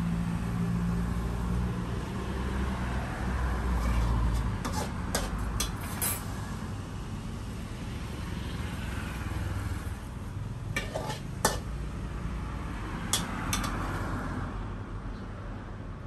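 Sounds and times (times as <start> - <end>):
road traffic rumble: 0.0 - 16.0
metal spatula scraping a wok: 3.6 - 6.3, 10.7 - 11.7, 13.1 - 14.0.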